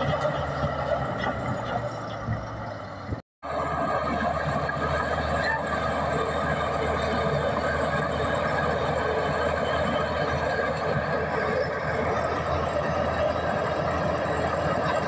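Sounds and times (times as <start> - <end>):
bulldozer diesel engine under load: 0.0 - 15.0.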